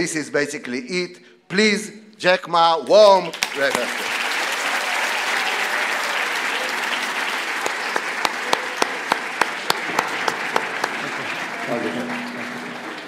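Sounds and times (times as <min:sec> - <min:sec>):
audience applauding: 0:03.1 - 0:13.0.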